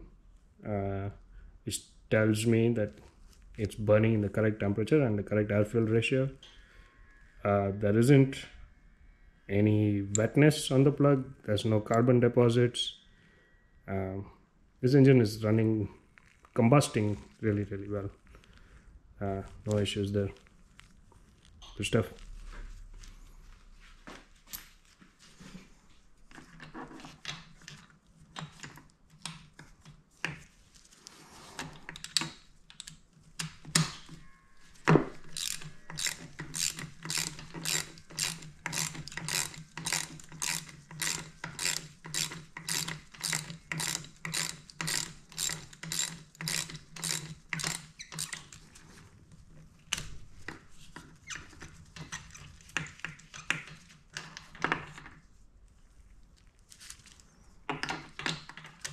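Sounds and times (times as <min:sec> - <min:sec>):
socket ratchet clicking: 0:35.1 - 0:48.6.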